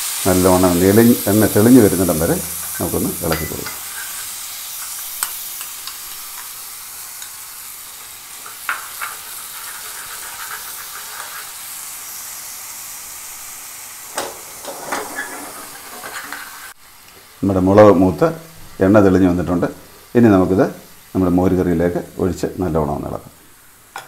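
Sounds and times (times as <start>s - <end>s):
paste sizzling in hot oil: 0.0s - 24.0s
metal spoon scraping a pan: 1.6s - 6.6s, 8.4s - 11.7s, 14.1s - 16.8s.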